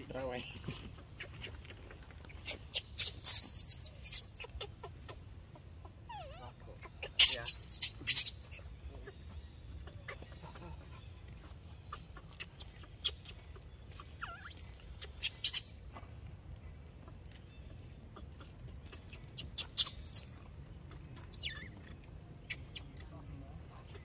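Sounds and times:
baby monkey squealing: 0:02.4 - 0:05.2, 0:06.1 - 0:08.7, 0:11.9 - 0:15.8, 0:18.8 - 0:20.3, 0:21.2 - 0:21.9.

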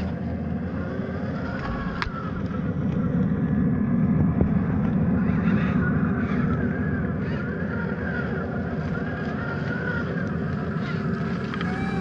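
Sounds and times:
toy car electric motor whining: 0:11.6 - 0:12.0.

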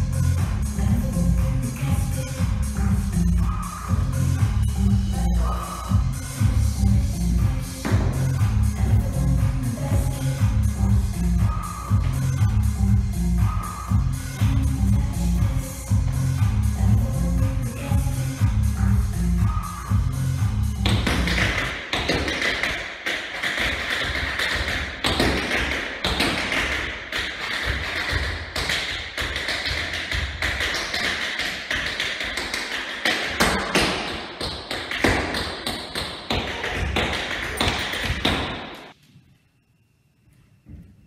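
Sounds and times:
tap-shoe steps: 0:07.8 - 0:08.3.

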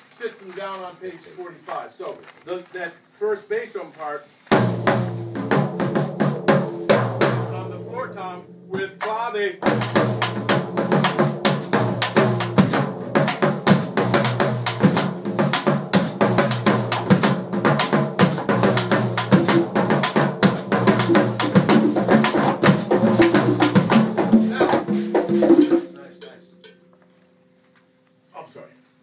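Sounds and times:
percussion ensemble groove: 0:04.5 - 0:27.2.

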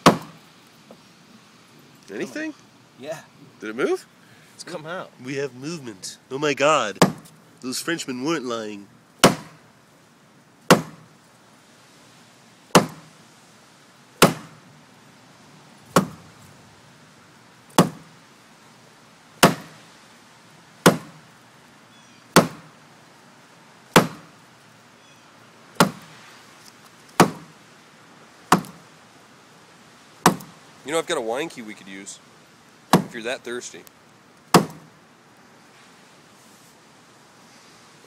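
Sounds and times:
sharp knocks on wooden post: 0:00.0 - 0:01.0, 0:07.0 - 0:07.4, 0:09.2 - 0:09.6, 0:10.7 - 0:11.1, 0:12.7 - 0:13.1, 0:14.2 - 0:14.6, 0:15.9 - 0:16.2, 0:17.7 - 0:18.1, 0:19.4 - 0:19.8, 0:20.8 - 0:21.2, 0:22.4 - 0:22.7, 0:23.9 - 0:24.3, 0:25.8 - 0:26.1, 0:27.2 - 0:27.6, 0:28.5 - 0:28.8, 0:30.2 - 0:30.6, 0:32.9 - 0:33.2, 0:34.5 - 0:34.9.

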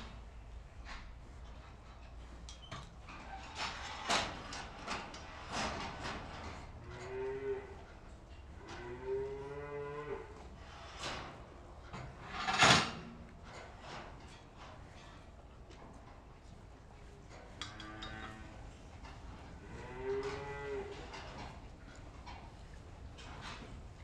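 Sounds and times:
cows mooing: 0:06.8 - 0:07.8, 0:08.6 - 0:10.4, 0:19.5 - 0:21.0.

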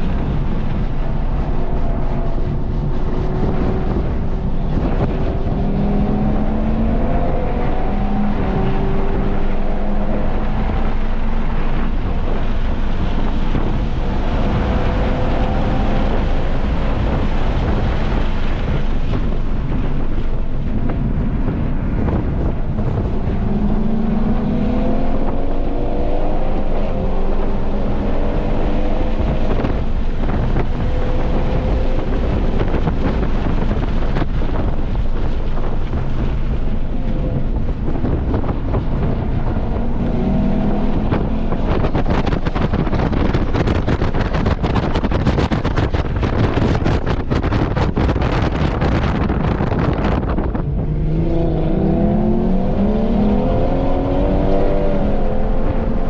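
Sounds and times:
car engine revving through gears: 0:00.0 - 0:19.2, 0:20.9 - 0:34.7, 0:36.0 - 0:45.5, 0:47.7 - 0:56.0
wind noise on microphone: 0:00.0 - 0:56.0.

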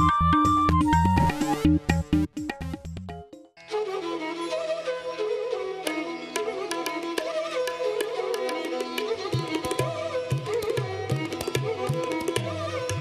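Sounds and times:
hand-drum beats: 0:00.0 - 0:03.4, 0:06.4 - 0:13.0
instrumental music melody: 0:00.0 - 0:13.0.

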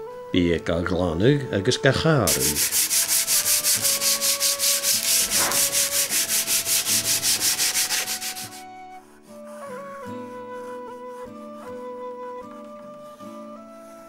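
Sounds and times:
sanding wood by hand: 0:02.2 - 0:09.6
soft flute tune: 0:03.7 - 0:14.0.

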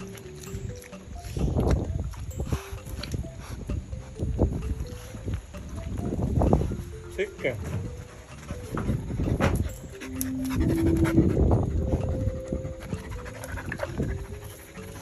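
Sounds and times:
background music sustained notes: 0:00.0 - 0:15.0
dog panting: 0:07.6 - 0:15.0.

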